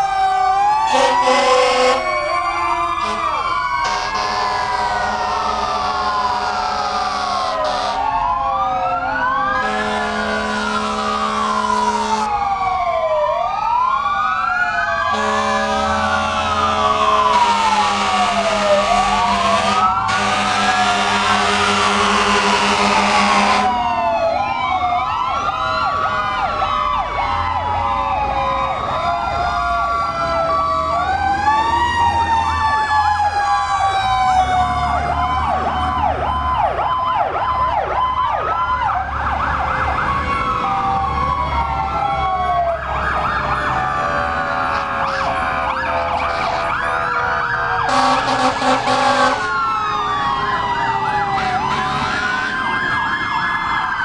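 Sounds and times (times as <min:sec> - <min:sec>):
diesel engines rumbling: 0:00.0 - 0:54.0
fire truck sirens wailing: 0:00.0 - 0:54.0
horn blast: 0:00.9 - 0:02.1, 0:03.0 - 0:08.1, 0:09.6 - 0:12.3, 0:15.1 - 0:23.8, 0:47.9 - 0:49.6.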